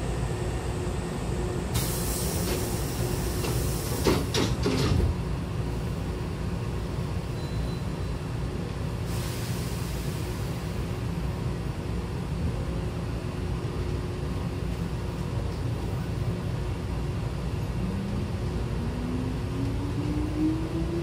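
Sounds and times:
low hum of standing train: 0:00.0 - 0:21.0
door air hiss: 0:01.8 - 0:04.4
train doors knocking shut: 0:02.4 - 0:05.2.

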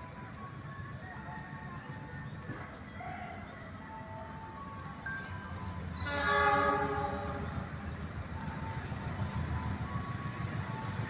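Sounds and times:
station chime melody: 0:03.6 - 0:06.0.

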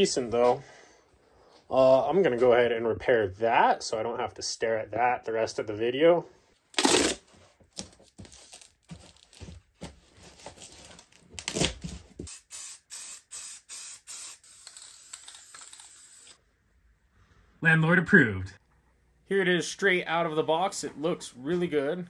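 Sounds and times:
duct tape ripping off roll: 0:06.8 - 0:07.2, 0:11.4 - 0:12.7, 0:13.5 - 0:16.4
tape taps and rustles: 0:06.8 - 0:12.3
aerosol can spraying: 0:12.3 - 0:16.4.

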